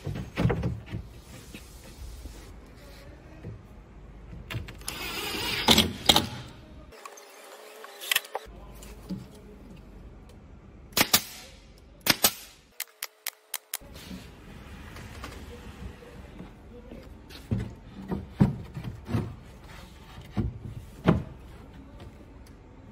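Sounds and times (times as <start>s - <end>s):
nail gun firing: 11.0s - 13.8s.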